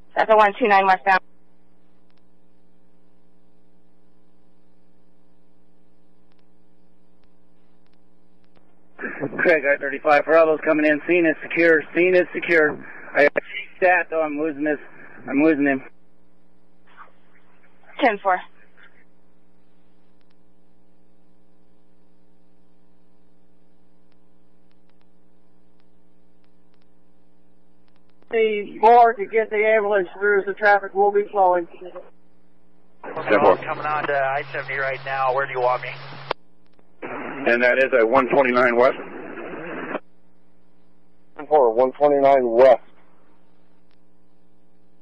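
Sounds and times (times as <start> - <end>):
electrical mains hum: 0.0 - 45.0
faint ticks: 1.8 - 2.3, 6.2 - 8.8, 20.0 - 20.5, 24.0 - 27.0, 27.8 - 28.3
faint radio click: 7.1 - 9.5, 20.1 - 20.4, 24.0 - 27.0, 27.8 - 28.4, 33.8 - 37.5.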